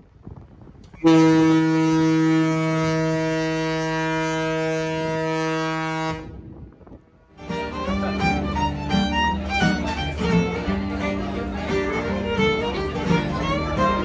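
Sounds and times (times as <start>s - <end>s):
fiddle music: 1.0s - 6.3s, 7.3s - 14.0s
ship's horn blast: 1.0s - 6.7s.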